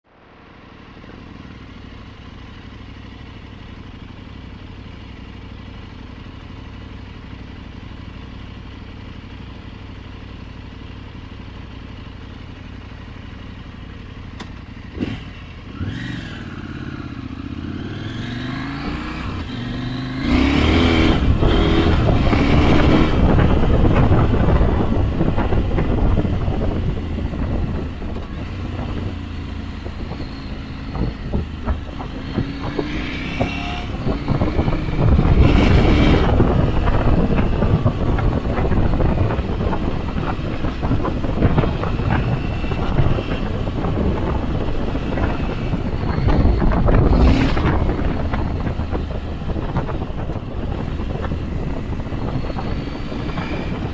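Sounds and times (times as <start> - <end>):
motorcycle engine: 0.1 - 53.9
wind noise: 17.7 - 53.9.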